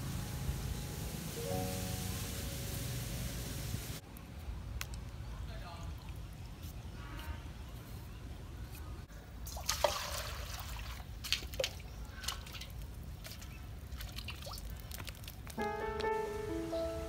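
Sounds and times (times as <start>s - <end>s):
water dripping and trickling: 0.0s - 5.2s, 5.8s - 6.4s, 9.4s - 16.1s
water splashing: 9.4s - 15.6s.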